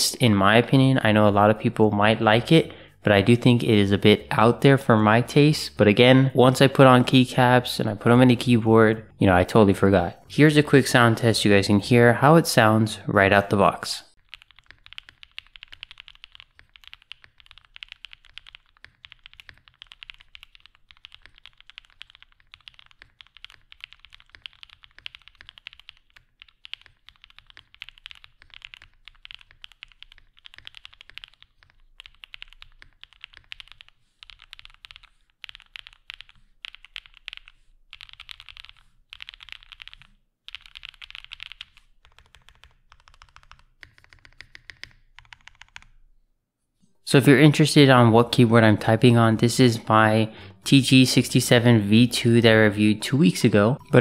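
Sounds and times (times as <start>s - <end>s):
fast typing on mechanical keyboard: 14.2s - 46.0s.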